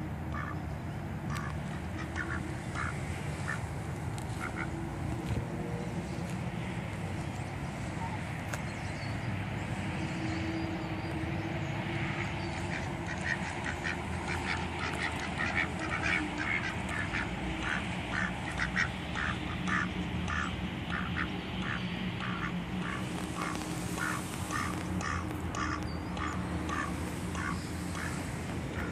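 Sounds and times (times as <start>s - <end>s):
ducks quacking: 0.3s - 0.6s, 1.3s - 5.4s, 12.0s - 28.9s.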